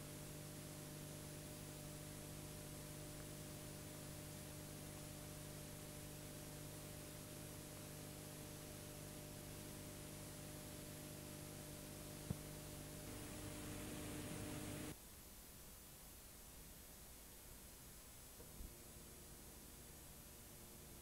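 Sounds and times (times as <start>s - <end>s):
low electrical hum: 0.0s - 21.0s
videotape hiss: 0.0s - 21.0s.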